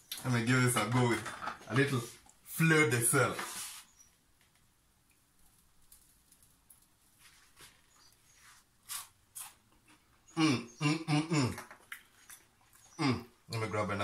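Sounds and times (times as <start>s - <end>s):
man's wordless voice: 0.2s - 3.5s, 13.0s - 14.0s.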